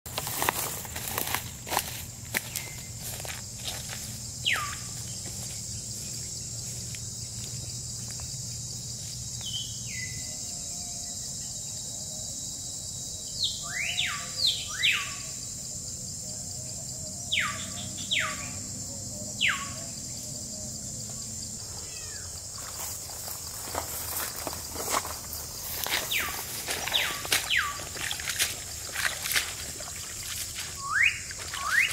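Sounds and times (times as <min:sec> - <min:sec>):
high-pitched insect drone: 0:00.2 - 0:31.9
bird downward-sweeping whistles: 0:30.8 - 0:31.9.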